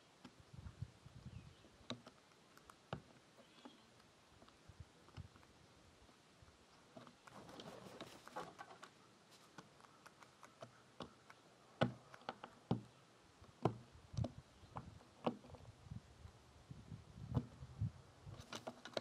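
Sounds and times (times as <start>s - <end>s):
beak tapping on nuts: 9.5s - 15.5s.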